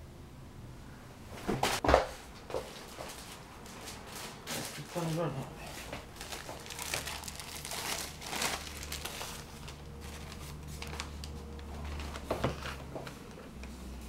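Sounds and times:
newspaper pages rustling: 0:02.9 - 0:13.6.

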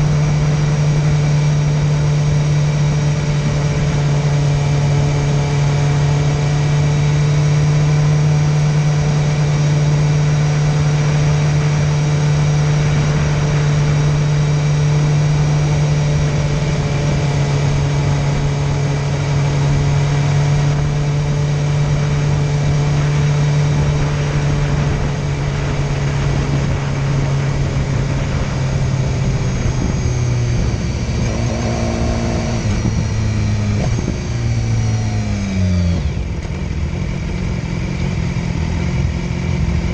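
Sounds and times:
motorcycle engine cruising: 0:00.0 - 0:39.9
wind noise: 0:08.9 - 0:36.4.

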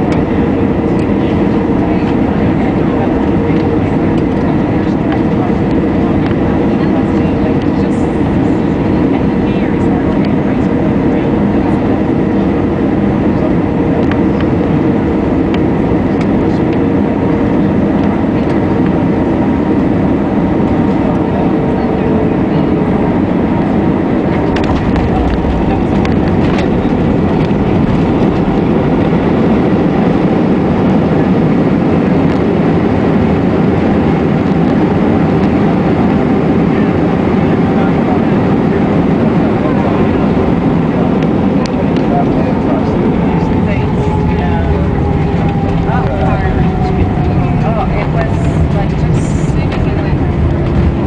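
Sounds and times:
jet engines in aircraft cabin: 0:00.0 - 0:51.0
rushing airflow: 0:00.0 - 0:51.0.

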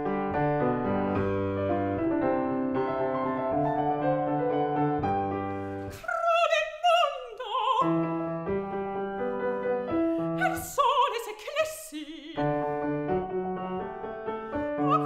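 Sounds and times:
piano: 0:00.0 - 0:15.0
woman singing opera: 0:05.9 - 0:08.1, 0:10.4 - 0:12.8, 0:14.7 - 0:15.0.

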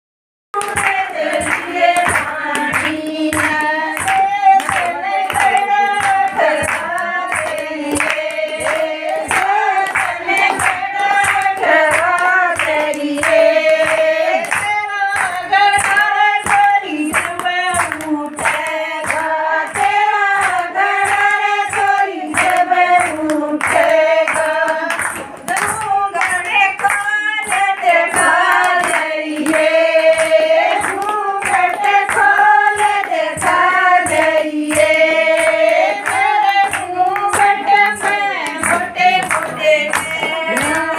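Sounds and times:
hand claps: 0:00.5 - 0:40.9
women singing in unison: 0:00.6 - 0:40.9.

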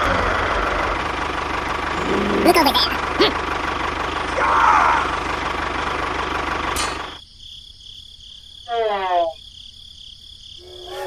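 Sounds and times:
engine chugging: 0:00.0 - 0:07.2.

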